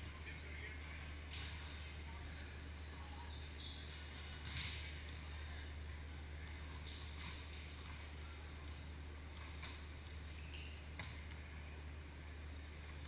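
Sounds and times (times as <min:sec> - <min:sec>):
steady low hum: 0:00.0 - 0:13.0
volleyball hits: 0:04.1 - 0:05.2, 0:09.3 - 0:11.4.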